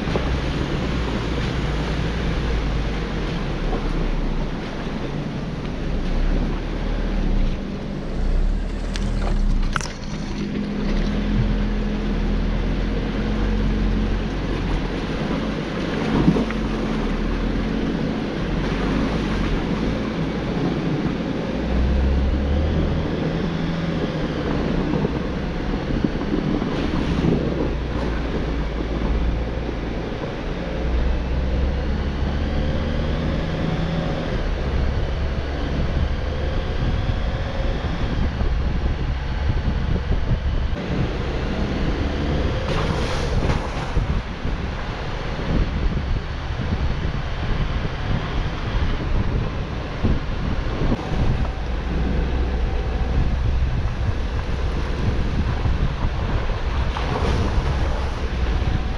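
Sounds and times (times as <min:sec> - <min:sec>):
vehicle engine low rumble: 0:00.0 - 0:58.9
wind noise on microphone: 0:00.0 - 0:58.9
tyres on gravel: 0:07.5 - 0:11.6.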